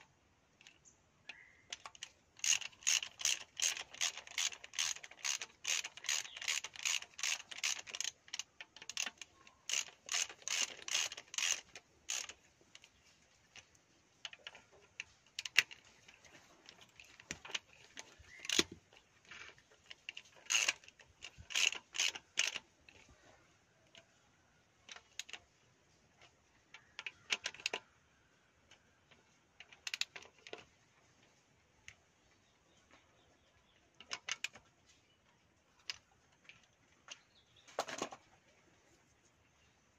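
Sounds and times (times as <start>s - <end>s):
ratchet wrench clicking: 1.7s - 12.9s, 16.8s - 18.8s, 20.1s - 23.0s.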